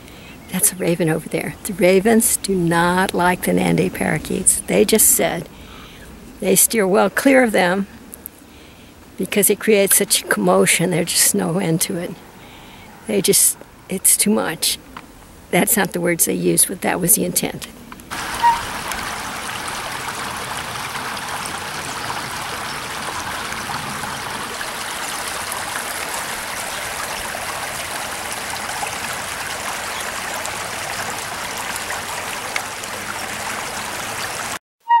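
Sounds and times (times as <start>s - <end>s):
creek babbling over rocks: 18.1s - 34.6s.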